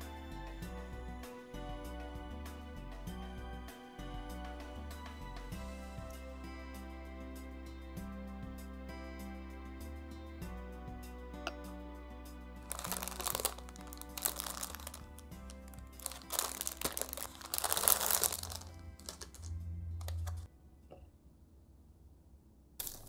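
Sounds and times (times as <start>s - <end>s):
background music: 0.0s - 20.5s
plastic bag crinkling: 12.7s - 19.5s, 22.8s - 23.0s.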